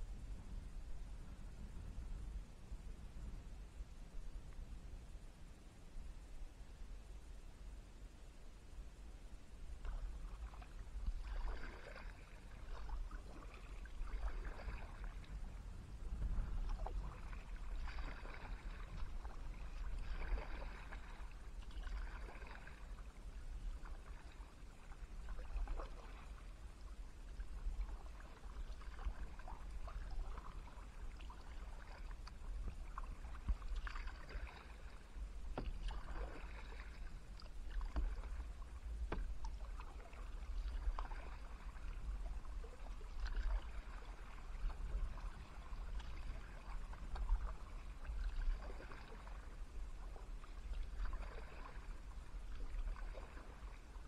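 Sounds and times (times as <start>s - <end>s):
steady low rumble: 0.0s - 51.2s
paddle splashing in water: 9.7s - 54.0s.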